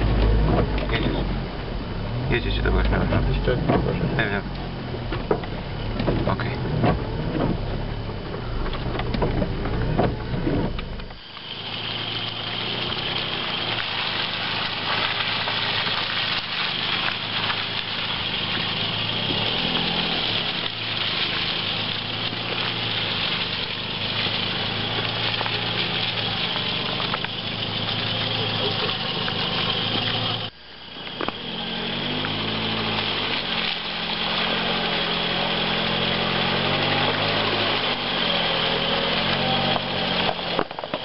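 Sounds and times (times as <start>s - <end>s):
car engine approaching: 0.0s - 41.0s
car engine rumble: 0.0s - 41.0s
steady hiss: 10.8s - 41.0s.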